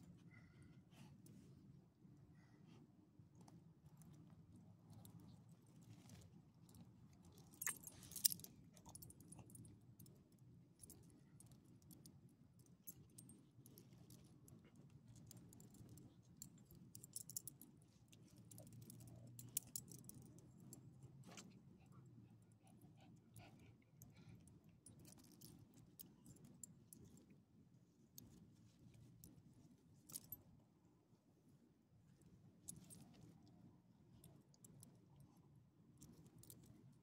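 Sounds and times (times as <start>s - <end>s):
low steady hum: 0.0s - 37.0s
dog collar tags jingling: 7.5s - 9.1s.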